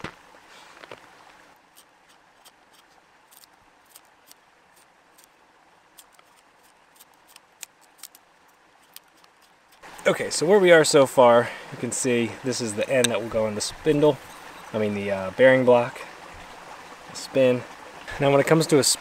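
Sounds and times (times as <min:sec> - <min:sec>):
knife carving wood: 0:01.6 - 0:05.3, 0:06.0 - 0:10.0.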